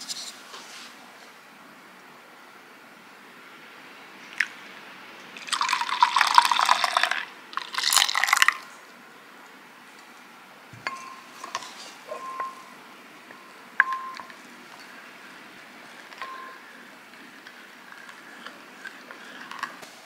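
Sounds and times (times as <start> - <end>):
milk pouring into a glass bowl: 5.4 - 8.7.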